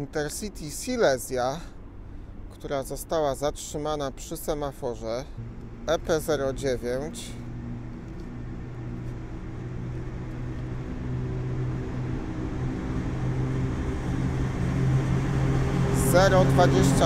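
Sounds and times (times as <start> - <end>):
electric locomotive hum: 5.4 - 17.0.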